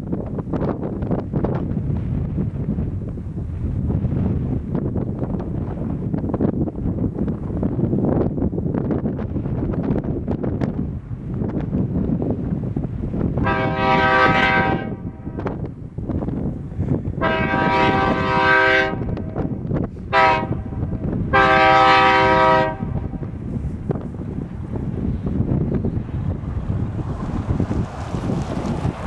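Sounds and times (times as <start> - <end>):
wind on microphone: 0.0 - 29.0
train horn blasts: 13.4 - 15.5, 17.2 - 19.5, 20.1 - 23.2.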